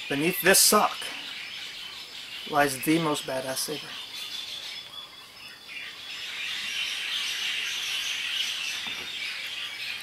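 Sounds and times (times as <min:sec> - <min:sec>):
birds chirping: 0:00.0 - 0:10.0
steady high hiss: 0:00.0 - 0:10.0.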